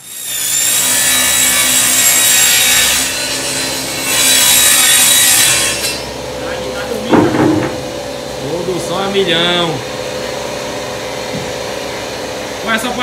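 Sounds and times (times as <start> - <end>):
power saw cutting plywood: 0.0 - 6.2.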